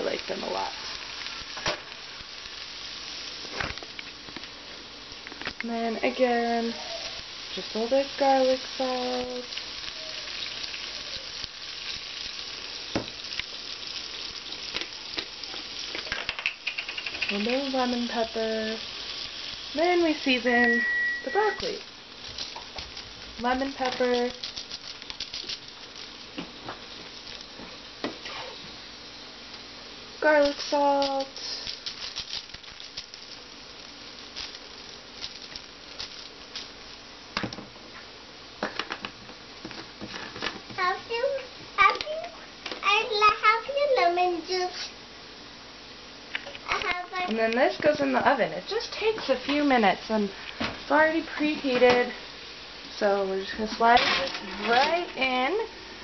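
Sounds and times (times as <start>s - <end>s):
fish sizzling in hot oil: 0.0s - 56.0s
light ticks and pattering: 15.9s - 17.6s.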